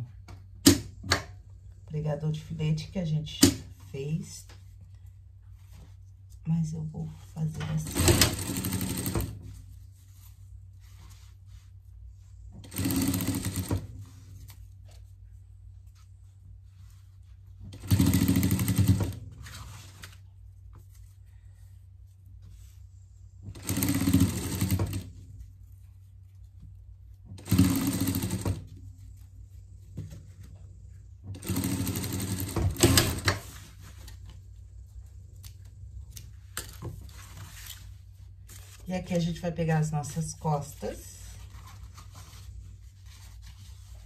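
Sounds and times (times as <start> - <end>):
low steady hum: 0.0 - 18.0, 28.2 - 44.0
sewing machine stitching: 7.6 - 9.4, 12.6 - 13.9, 17.7 - 19.2, 23.5 - 25.1, 27.4 - 28.7, 31.3 - 33.5.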